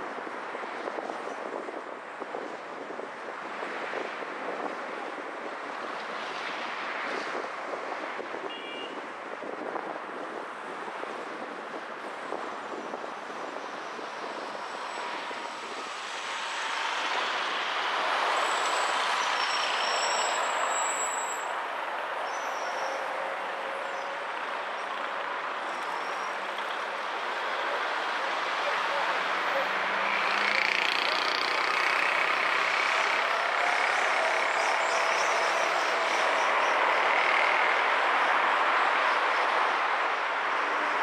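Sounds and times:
passing vehicles: 0.0 - 41.0
tyres rushing on road: 0.0 - 41.0
high-pitched squeals: 32.1 - 37.6.

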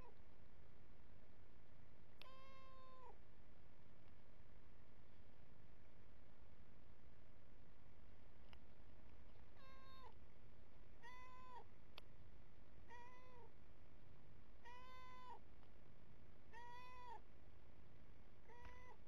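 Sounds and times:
cat meowing: 2.2 - 3.2, 9.6 - 10.2, 11.0 - 11.7, 12.9 - 13.5, 14.6 - 15.4, 16.5 - 17.2, 18.5 - 19.0.

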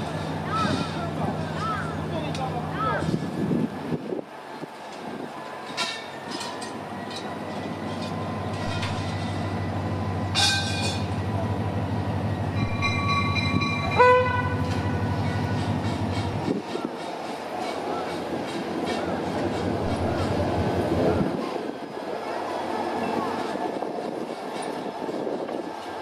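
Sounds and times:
locomotive engine drone: 0.0 - 26.0
train horn blasts: 12.6 - 15.2.

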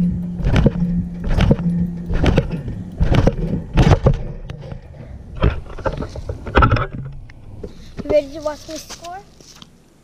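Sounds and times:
low rumble: 0.0 - 8.5
steady low hum: 0.0 - 10.0.

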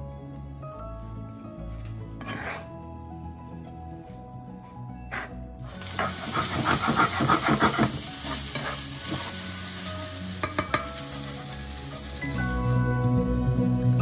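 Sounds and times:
spatula scraping pan: 2.2 - 2.7, 5.1 - 9.4
rice sizzling in frying pan: 5.1 - 12.9
spatula tapping pan: 10.4 - 11.0.

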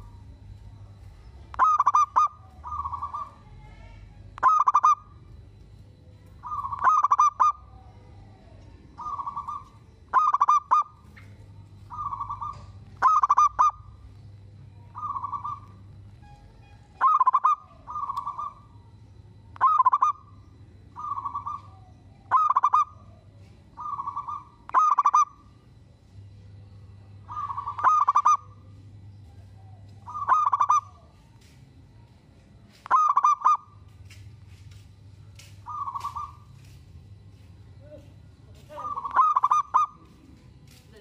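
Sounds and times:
dove cooing: 0.0 - 19.0, 19.6 - 25.6, 27.0 - 31.4, 32.8 - 33.8, 35.6 - 36.7, 38.5 - 40.4.

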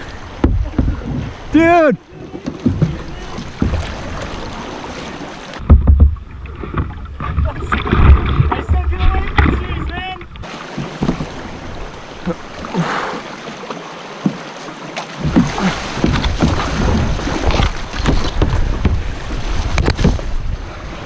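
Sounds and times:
paddle splashes: 0.0 - 21.0
knocks: 5.6 - 6.2.

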